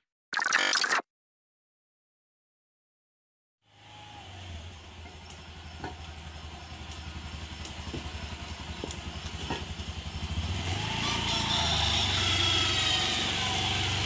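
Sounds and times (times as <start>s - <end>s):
scooter engine idling: 3.7s - 14.0s
faint ticks: 6.8s - 7.8s.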